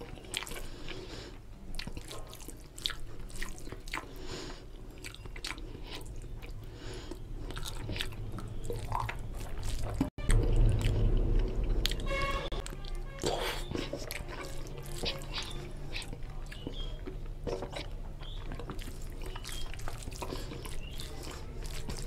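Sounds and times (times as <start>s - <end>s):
wet chewing and lip smacking: 0.0s - 22.0s
fingers squishing rice: 12.6s - 22.0s.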